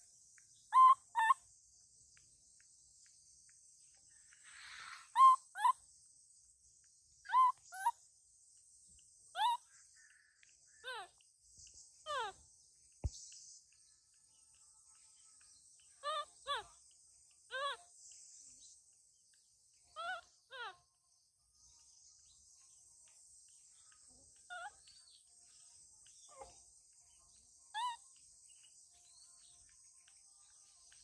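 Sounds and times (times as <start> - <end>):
insects buzzing: 0.0 - 31.0
baby monkey squeaky calls: 0.7 - 1.4, 4.6 - 5.8, 7.3 - 8.0, 9.4 - 9.6, 10.8 - 11.1, 12.1 - 12.4, 16.0 - 16.8, 17.5 - 17.8, 20.0 - 20.7, 24.5 - 24.8, 27.8 - 28.0.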